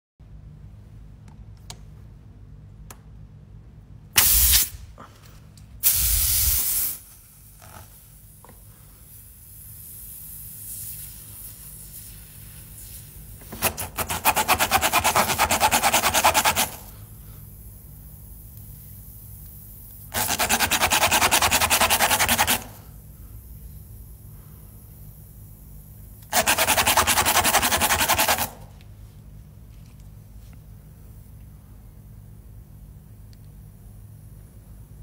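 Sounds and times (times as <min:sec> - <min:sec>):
hissing spray bursts: 0:04.2 - 0:04.8, 0:05.8 - 0:08.4, 0:09.0 - 0:17.0.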